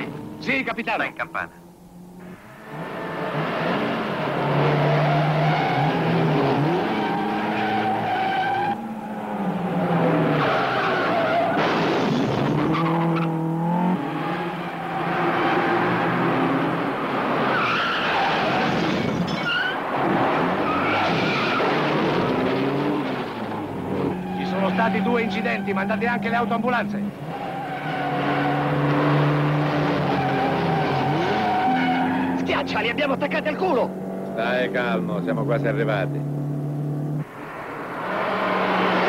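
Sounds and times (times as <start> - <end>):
car engines revving: 0.0 - 39.0
tyres squealing: 17.5 - 19.8, 23.9 - 28.6.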